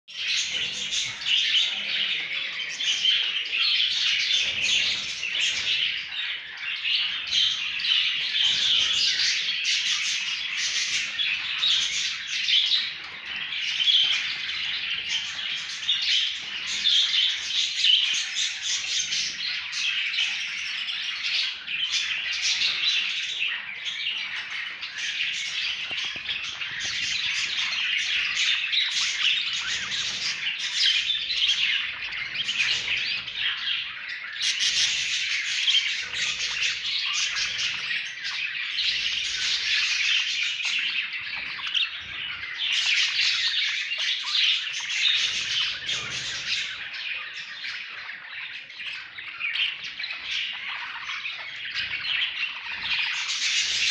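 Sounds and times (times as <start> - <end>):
budgerigars chirping and squawking: 0.1 - 53.9.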